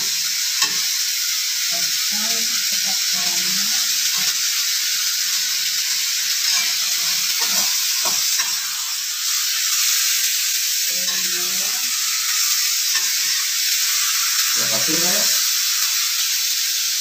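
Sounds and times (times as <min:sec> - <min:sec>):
food sizzling in hot oil: 0:00.0 - 0:17.0
metal spatula stirring: 0:05.9 - 0:08.6.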